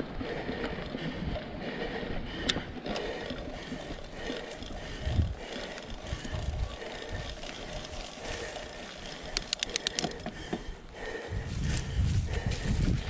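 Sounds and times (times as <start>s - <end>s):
bike tyres crunching leaves: 3.0s - 13.0s
sharp clicks: 9.2s - 10.3s.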